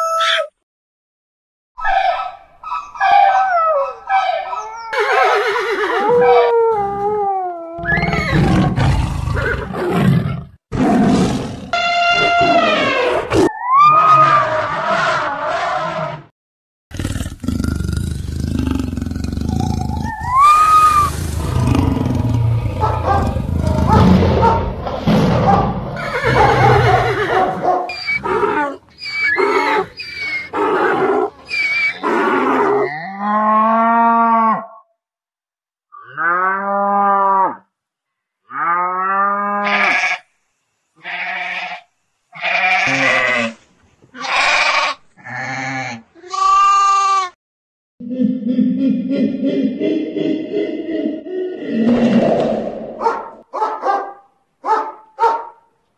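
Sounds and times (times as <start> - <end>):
farm animal calls: 1.8 - 6.5, 26.0 - 33.1, 42.4 - 43.6, 44.2 - 47.3
animal roars and growls: 5.9 - 16.3, 16.9 - 34.9, 48.0 - 53.1.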